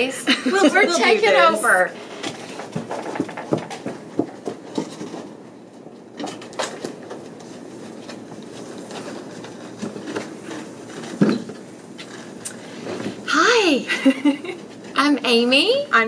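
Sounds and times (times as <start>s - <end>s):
footsteps: 2.0s - 13.3s
chair being shifted: 6.1s - 13.3s.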